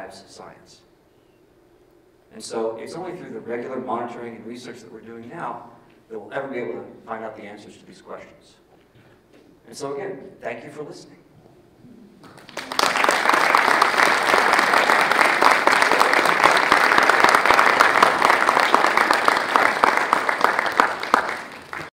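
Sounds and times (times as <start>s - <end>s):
audience applauding: 12.2s - 21.9s.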